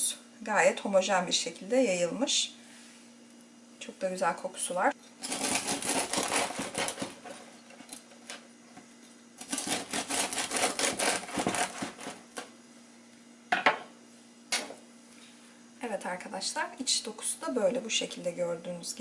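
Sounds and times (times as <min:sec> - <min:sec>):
bread knife sawing crust: 0:05.2 - 0:07.4, 0:09.4 - 0:12.2.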